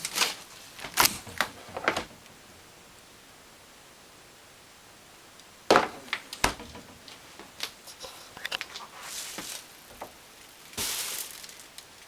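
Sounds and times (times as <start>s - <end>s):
packages rustling: 0.0s - 2.2s, 8.4s - 12.0s
refrigerator door thump: 5.7s - 7.0s.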